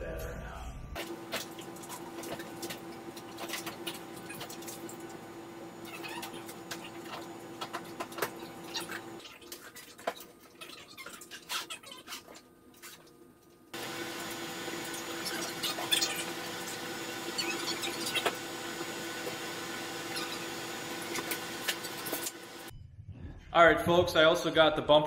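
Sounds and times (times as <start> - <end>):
steady hum: 0.1 - 9.2.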